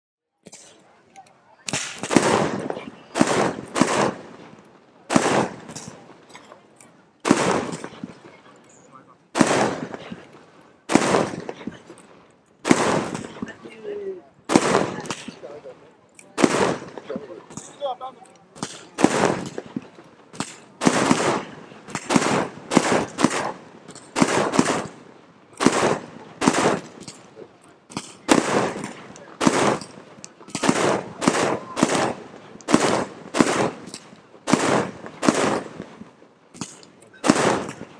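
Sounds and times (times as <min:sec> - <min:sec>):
fireworks bangs: 0:01.6 - 0:37.9.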